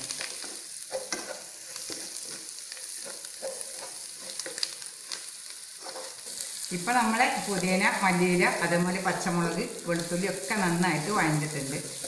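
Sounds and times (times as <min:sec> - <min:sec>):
masala sizzling in oil: 0:00.0 - 0:12.0
wooden spatula scraping pan: 0:00.4 - 0:04.8, 0:05.8 - 0:06.4.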